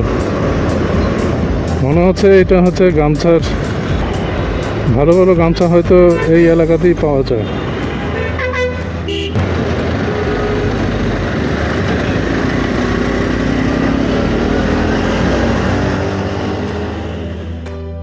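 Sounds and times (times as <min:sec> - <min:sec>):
motorcycle engine: 0:00.0 - 0:02.8, 0:08.7 - 0:17.8
traffic passing close: 0:00.0 - 0:17.8
road and wind noise: 0:00.0 - 0:18.0.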